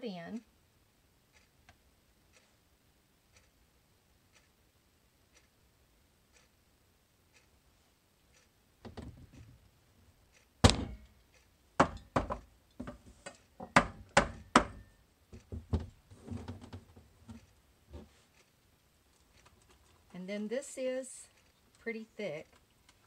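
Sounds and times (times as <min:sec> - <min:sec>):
mould thunking on wooden table: 0:10.6 - 0:11.0, 0:11.8 - 0:13.0.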